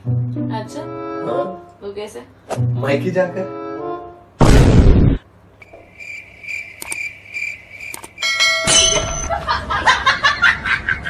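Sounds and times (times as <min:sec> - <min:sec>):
cricket chirping: 0:05.6 - 0:09.4
short ringing chime: 0:08.2 - 0:09.4.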